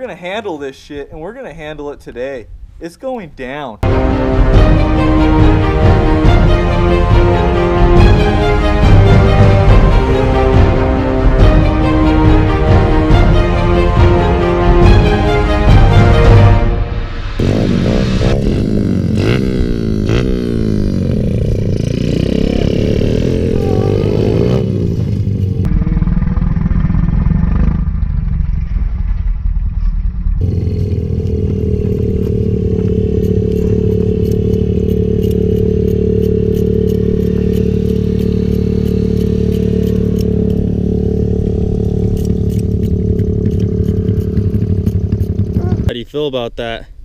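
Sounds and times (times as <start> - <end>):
dirt bike engines revving: 17.4 - 28.2, 30.4 - 46.0
engine idling: 25.1 - 45.9.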